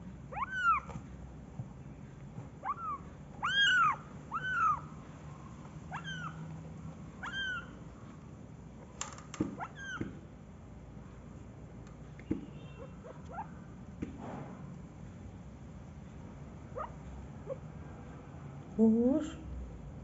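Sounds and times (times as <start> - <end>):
kittens mewing: 0.3 - 1.0, 2.6 - 5.0, 5.9 - 6.6, 7.2 - 7.8, 9.5 - 10.2.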